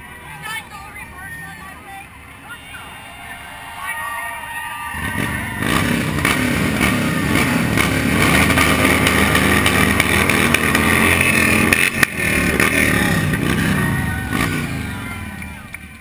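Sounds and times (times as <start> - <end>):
motorcycles running at low speed: 3.4 - 16.0.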